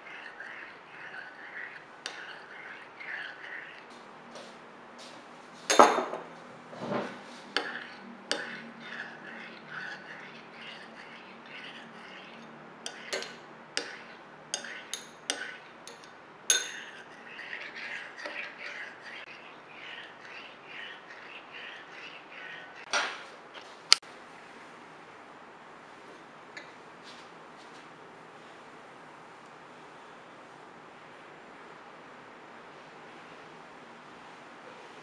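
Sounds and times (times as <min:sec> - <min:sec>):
teaspoon clinking on ceramic bowls: 0:14.6 - 0:17.1.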